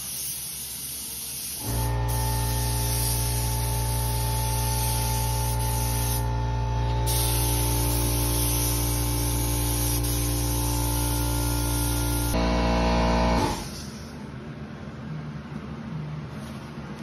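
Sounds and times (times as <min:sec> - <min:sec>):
spray gun hissing: 0:00.0 - 0:06.3, 0:07.0 - 0:12.4
electric motor hum: 0:01.6 - 0:13.8.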